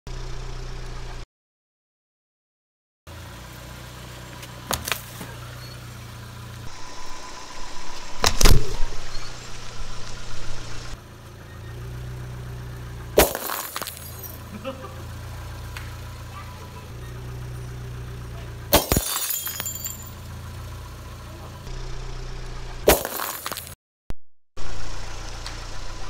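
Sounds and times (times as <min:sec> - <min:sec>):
car engine idling: 0:00.1 - 0:01.2, 0:03.1 - 0:22.9, 0:24.6 - 0:26.0.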